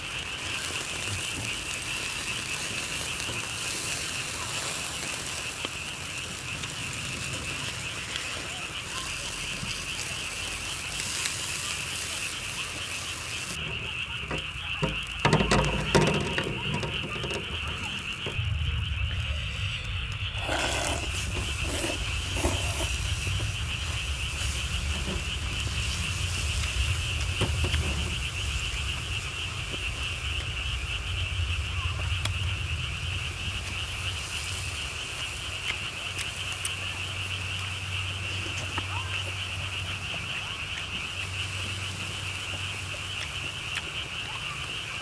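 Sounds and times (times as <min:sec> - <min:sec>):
chorus of calling animals: 0:00.0 - 0:45.0
chewing and eating: 0:20.4 - 0:23.6.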